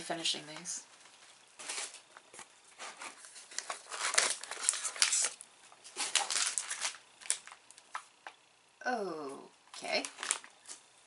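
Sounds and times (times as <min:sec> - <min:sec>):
plastic bag crinkling: 0:02.8 - 0:08.2, 0:09.8 - 0:10.9.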